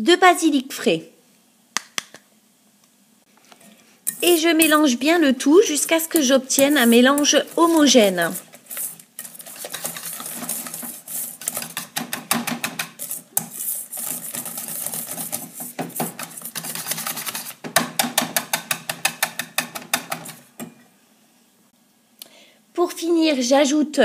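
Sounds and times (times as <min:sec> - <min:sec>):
whisk clicking in metal bowl: 0:05.9 - 0:20.5.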